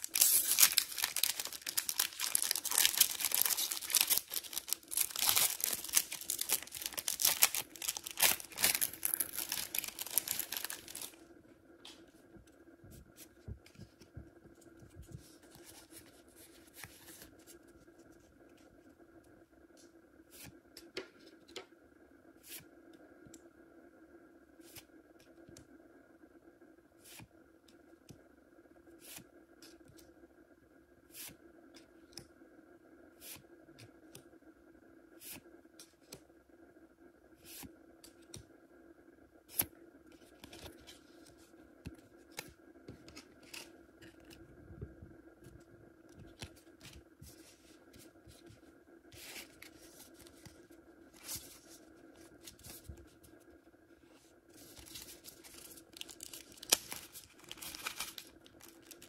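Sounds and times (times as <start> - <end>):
wrapping crinkling and tearing: 0.0 - 11.2, 54.5 - 59.0
faint steady hum: 0.0 - 59.0.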